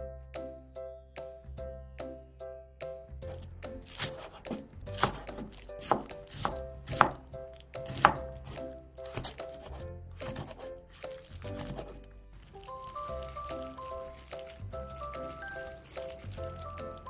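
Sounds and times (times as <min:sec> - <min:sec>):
light background music: 0:00.0 - 0:17.0
knife chopping on cutting board: 0:04.0 - 0:10.7.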